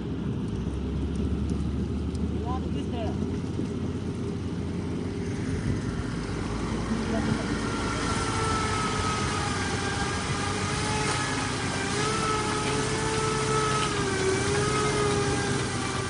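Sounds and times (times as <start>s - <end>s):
truck diesel engine running: 0.0s - 16.0s.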